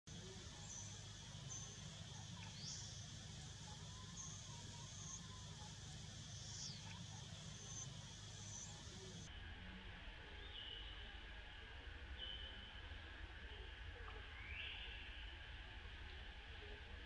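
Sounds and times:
steady low hum: 0.1 - 9.4.

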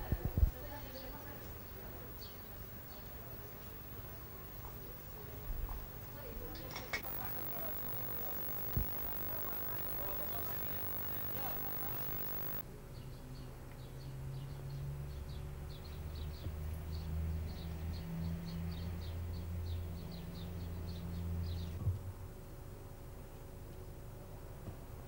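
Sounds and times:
small birds chirping: 7.0 - 12.6.

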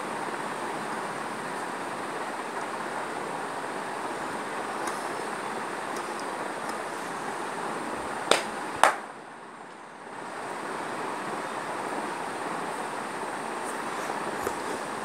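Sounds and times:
electric fan running: 0.0 - 15.0
hand slapping arm: 8.3 - 9.0.

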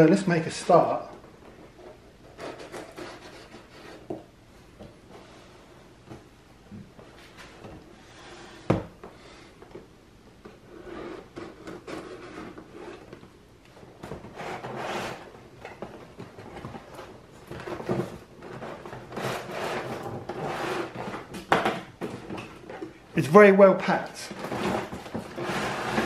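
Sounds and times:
cardboard scraping on wood: 1.6 - 4.2, 10.6 - 13.2, 14.0 - 22.9, 24.2 - 26.0.

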